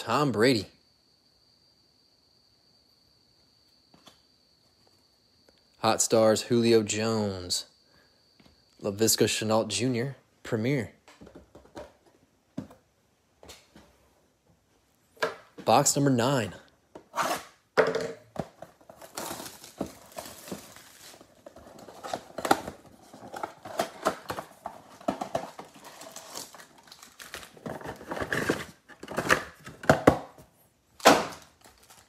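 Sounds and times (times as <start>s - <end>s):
wrappers crinkling: 18.9s - 28.7s, 31.3s - 32.0s
cardboard tearing: 18.9s - 29.6s.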